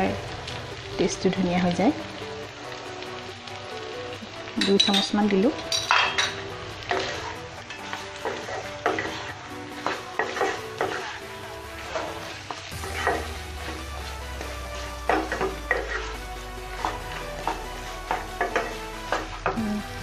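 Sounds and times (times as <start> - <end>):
meat sizzling in oil: 0.0 - 20.0
wooden spatula scraping pan: 6.8 - 19.4.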